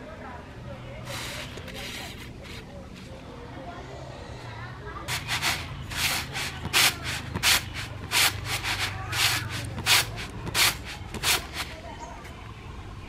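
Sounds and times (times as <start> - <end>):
grains rattling on a winnowing tray: 5.1 - 11.8.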